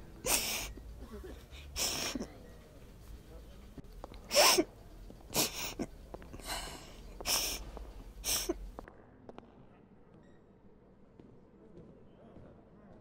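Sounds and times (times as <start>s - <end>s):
woman sobbing: 0.2s - 2.4s, 8.2s - 8.6s.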